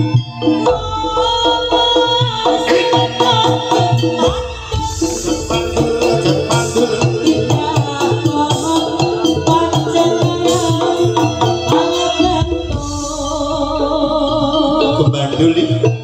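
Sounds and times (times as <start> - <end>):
loud music with percussion beat: 0.0 - 16.0
deep steady bass: 4.3 - 11.3.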